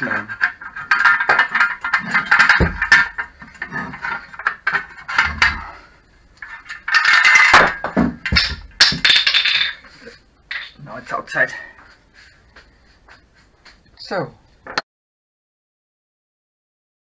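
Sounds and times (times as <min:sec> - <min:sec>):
metal clicking and scraping: 0:00.0 - 0:09.8.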